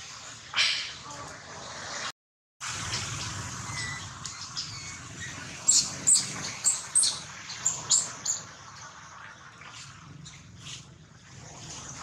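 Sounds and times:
baby monkey squeaking: 3.6s - 8.4s.

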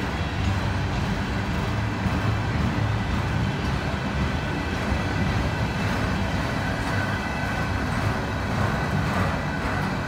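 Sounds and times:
train wheels clattering on rails: 0.0s - 10.0s.

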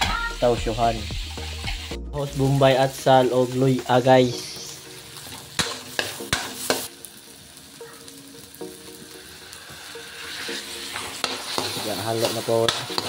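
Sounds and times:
food sizzling in oil: 0.0s - 13.0s
metal ladle scraping a wok: 10.1s - 13.0s.

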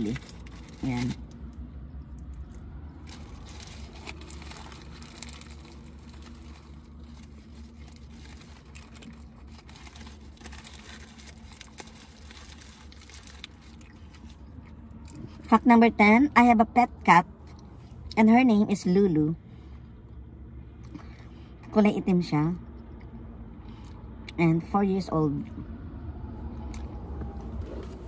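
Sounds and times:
paper wrapper crinkling: 0.0s - 1.4s, 3.0s - 14.6s
biting and chewing: 0.0s - 15.4s
low steady hum: 0.0s - 28.0s.

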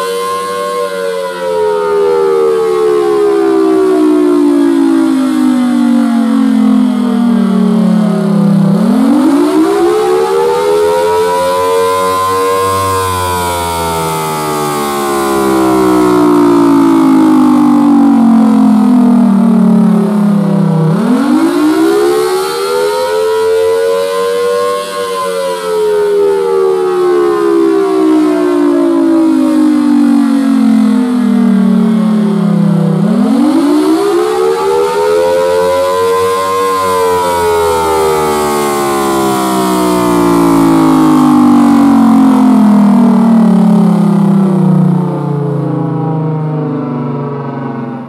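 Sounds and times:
siren wailing: 0.0s - 48.0s.

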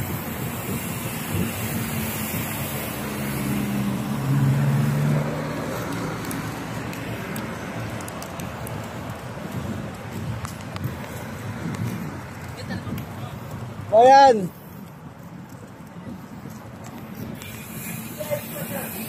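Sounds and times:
wind and road noise: 0.0s - 19.0s
car engine passing: 1.8s - 8.6s.

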